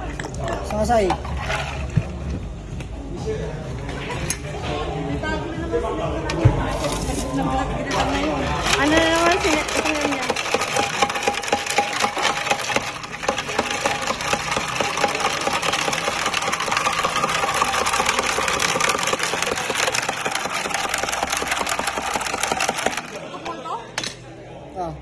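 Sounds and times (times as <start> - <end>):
ice clinking in glass jar: 8.0 - 23.2.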